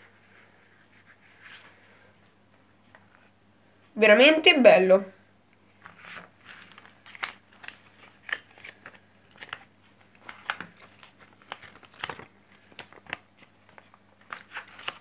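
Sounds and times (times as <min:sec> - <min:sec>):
glossy paper card rustling: 0:05.7 - 0:15.0.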